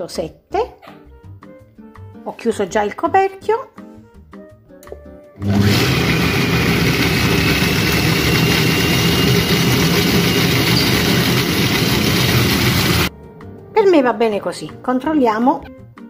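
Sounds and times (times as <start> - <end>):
food processor blending: 5.4 - 13.1.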